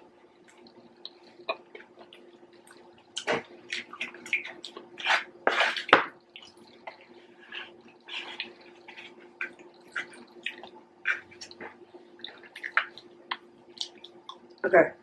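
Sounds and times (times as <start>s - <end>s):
faint steady hum: 0.0s - 15.0s
mouth smacks and chewing: 8.0s - 14.6s.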